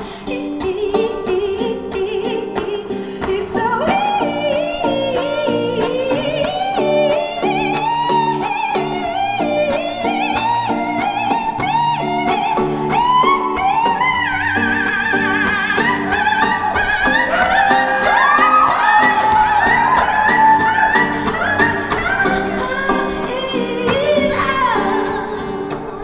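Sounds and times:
strummed guitar chords: 0.0s - 26.0s
woman singing: 0.0s - 26.0s.

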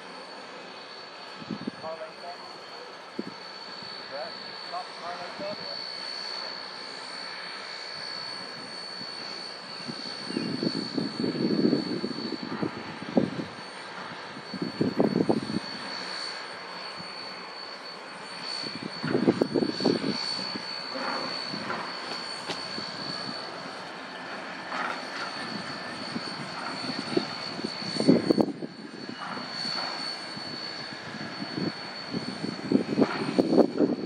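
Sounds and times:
thin high-pitched whine: 0.0s - 34.0s
steam locomotive exhaust chuffing: 12.3s - 27.8s, 28.5s - 31.0s, 32.9s - 33.9s.

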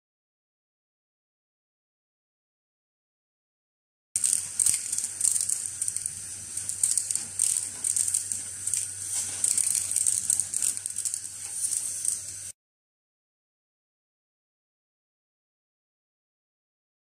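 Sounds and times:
clicks and rattles of offcuts: 4.2s - 12.4s
vacuum airflow hiss: 4.2s - 12.6s.

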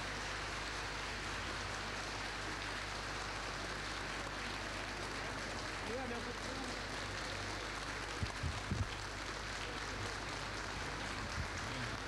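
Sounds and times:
faint crowd murmur: 0.0s - 12.0s.

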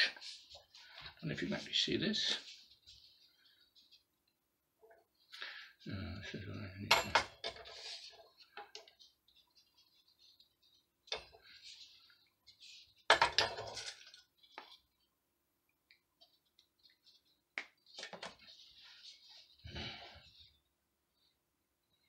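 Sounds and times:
tools clattering on a workbench: 6.9s - 8.9s, 13.1s - 14.7s, 18.0s - 18.4s
knocks and scrapes: 6.9s - 15.0s, 16.2s - 20.5s.

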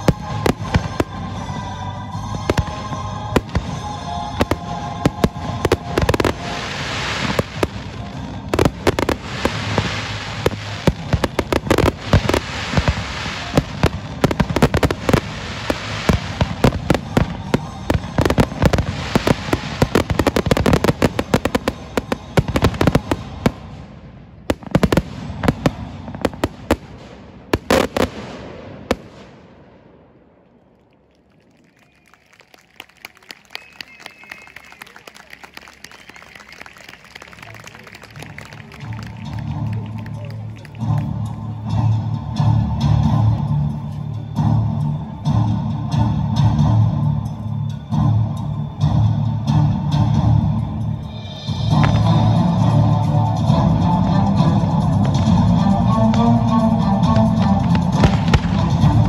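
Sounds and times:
fireworks bangs and crackle: 0.0s - 30.0s, 48.7s - 59.0s.

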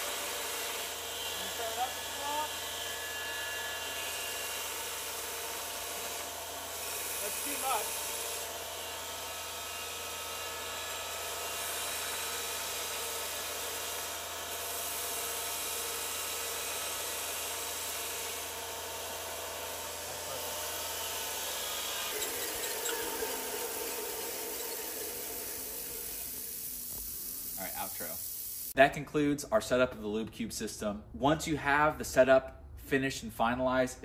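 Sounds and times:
belt sander motor hum: 0.0s - 27.6s
bar grinding against belt: 19.4s - 27.6s
hiss of air sprayer: 22.7s - 28.8s.

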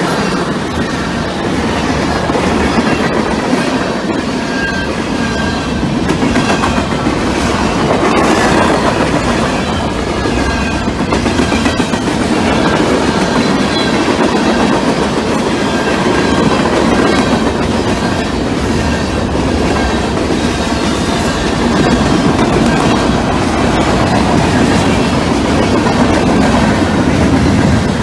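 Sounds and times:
clickety-clack over rail joints: 0.0s - 28.0s
train wheels rumbling on rails: 0.0s - 28.0s
faint high wheel squeal: 4.2s - 5.8s.

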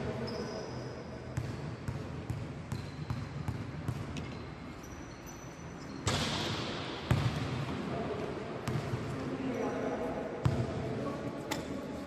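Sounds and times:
basketball dribbling on hard court: 8.6s - 8.9s.

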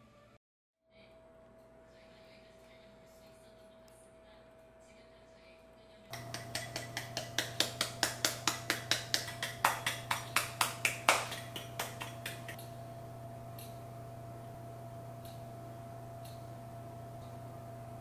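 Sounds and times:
metal sugar shaker tapping: 6.1s - 12.6s.

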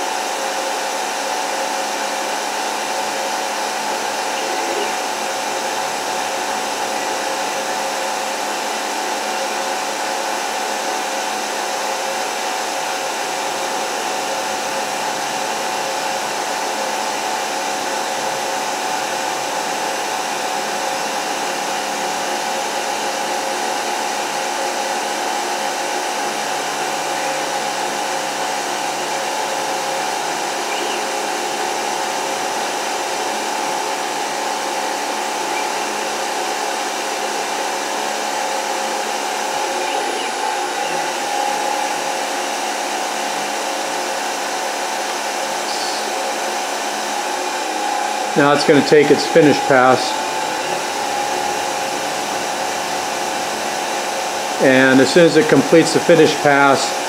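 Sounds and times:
lathe motor whine: 0.0s - 57.0s.

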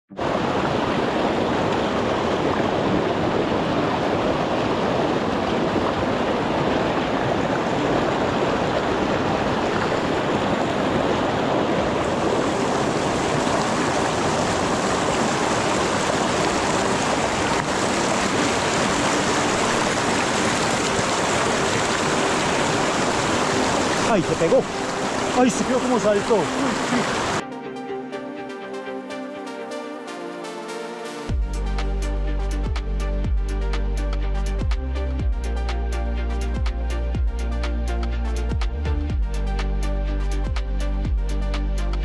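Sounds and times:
river rushing over rocks: 0.2s - 27.4s.

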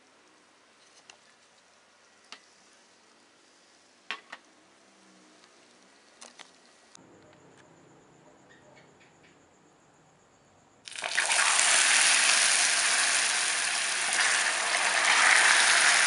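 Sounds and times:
caramel sizzling in pan: 10.9s - 16.0s.

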